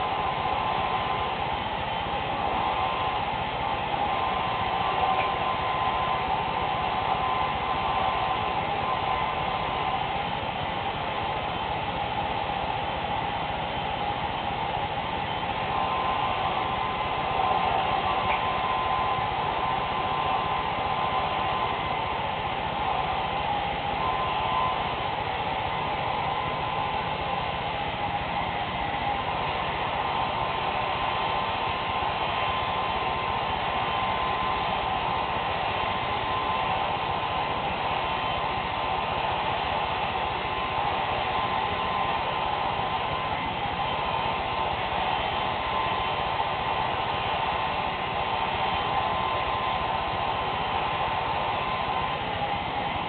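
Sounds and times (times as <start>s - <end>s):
hair dryer blowing air: 0.0s - 53.0s
motor whine: 0.0s - 53.0s.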